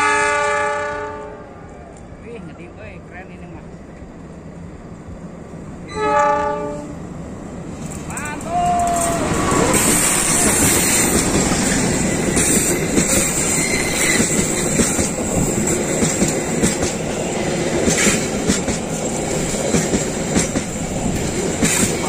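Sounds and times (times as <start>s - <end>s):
locomotive passing: 0.0s - 22.0s
train coaches rumbling: 0.0s - 22.0s
wheels clacking over rail joints: 7.7s - 22.0s.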